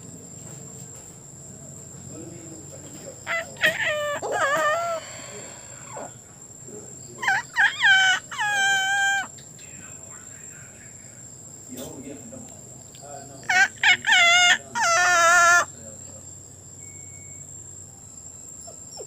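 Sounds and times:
rooster crowing: 3.3 - 6.1, 7.2 - 9.3, 13.4 - 15.8.

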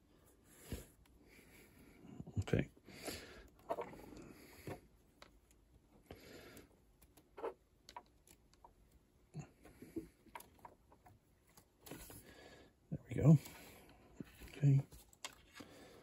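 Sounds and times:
light rustles of handling: 6.6 - 12.4, 13.1 - 16.0
small plastic parts clicking: 7.0 - 9.0.

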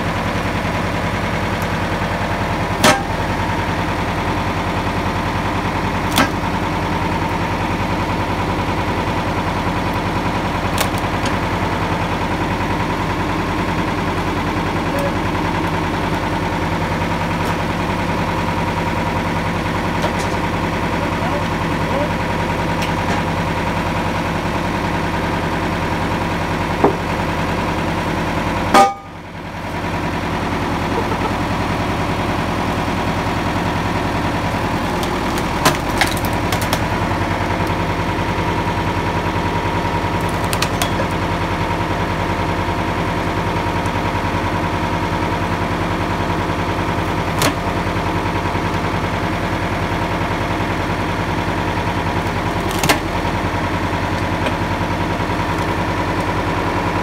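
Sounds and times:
tractor engine running: 0.0 - 57.0
log splitter knocks and cracks: 2.4 - 3.6, 4.7 - 12.6, 19.6 - 20.8, 32.6 - 49.9, 50.7 - 57.0.

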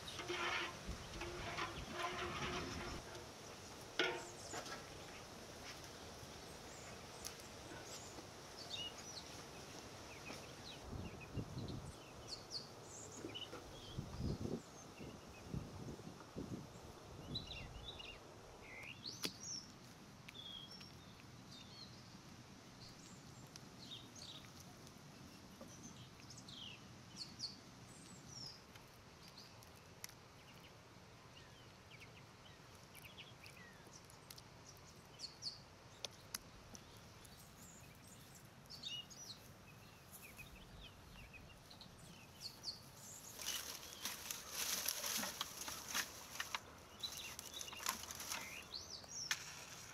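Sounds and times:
twigs rustling and crackling: 0.0 - 3.3, 42.3 - 49.9
small birds chirping: 0.0 - 49.9.

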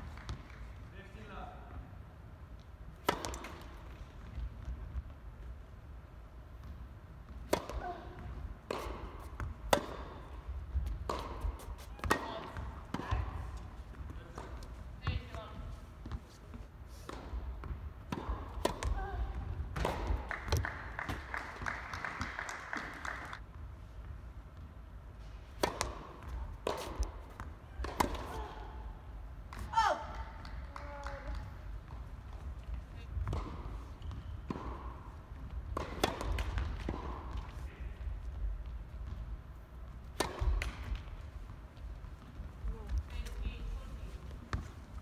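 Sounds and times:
tennis ball hit with rackets: 3.0 - 3.8, 7.4 - 14.8, 17.0 - 21.3, 25.5 - 28.5, 33.2 - 37.6, 40.1 - 41.2
applause: 20.2 - 23.4.

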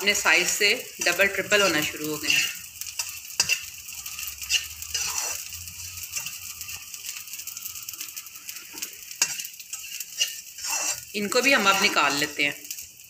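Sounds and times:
metal spatula scraping and knocking pan: 0.0 - 6.8, 8.7 - 12.4
gum sizzling in hot oil: 0.0 - 13.0.

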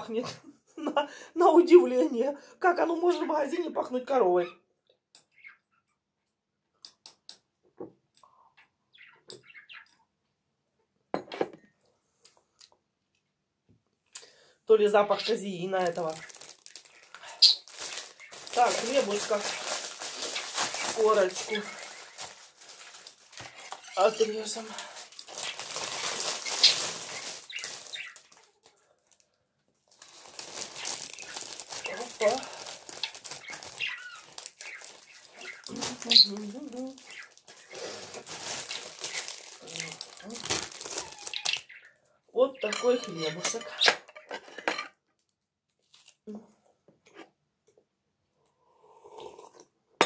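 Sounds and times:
mug being set down: 11.2 - 11.7
plastic bag crinkling: 15.4 - 41.7.

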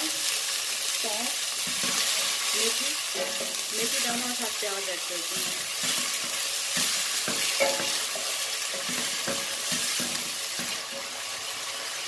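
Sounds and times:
onions sizzling in hot oil: 0.0 - 12.0
spatula scraping a pot: 5.3 - 11.1.

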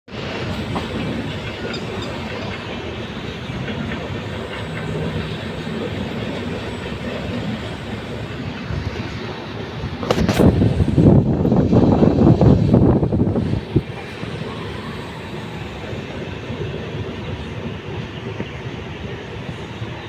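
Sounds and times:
train wheels rumbling on rails: 0.1 - 20.0.

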